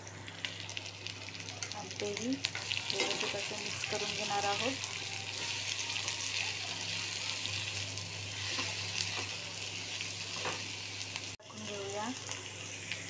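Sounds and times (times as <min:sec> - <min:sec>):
vegetables sizzling in oil: 0:00.0 - 0:13.0.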